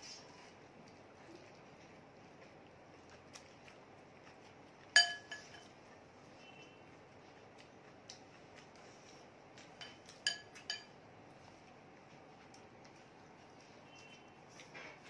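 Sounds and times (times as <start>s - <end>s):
metal spoon clinking glass bowl: 5.0s - 5.7s, 9.8s - 11.0s.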